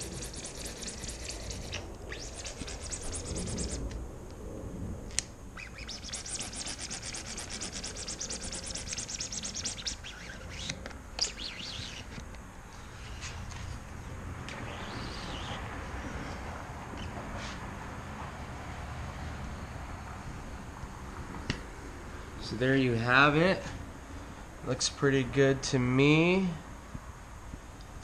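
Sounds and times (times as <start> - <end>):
bird chirping: 5.6 - 6.5, 8.0 - 12.2, 14.5 - 15.7.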